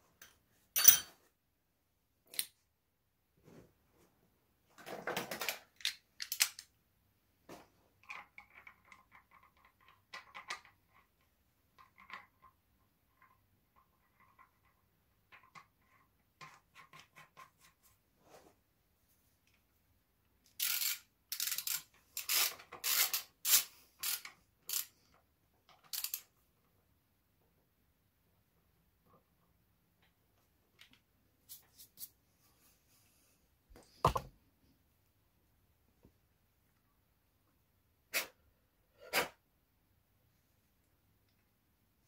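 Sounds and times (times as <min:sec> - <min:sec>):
screwdriver clattering: 0:00.8 - 0:01.2
plastic caps clicking and scraping: 0:05.3 - 0:06.7, 0:20.5 - 0:26.4.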